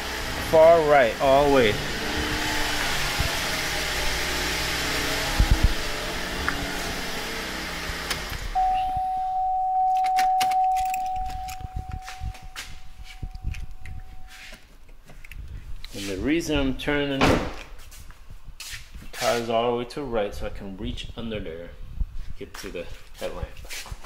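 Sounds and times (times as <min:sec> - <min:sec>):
car engine idling: 0:00.0 - 0:14.5
blower fan running: 0:00.0 - 0:14.6
electronic warning tone: 0:08.6 - 0:14.4.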